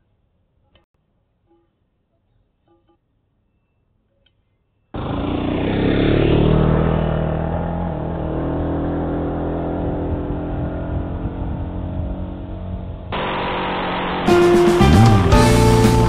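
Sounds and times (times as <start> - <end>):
motorcycle engine pulling away: 5.0 - 16.0.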